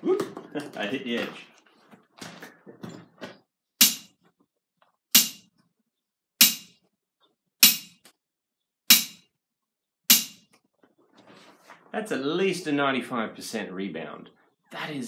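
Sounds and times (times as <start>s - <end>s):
steel ball bouncing on anvil: 3.8s - 4.2s, 5.1s - 5.5s, 6.4s - 6.8s, 7.6s - 8.0s, 8.9s - 9.3s, 10.1s - 10.5s.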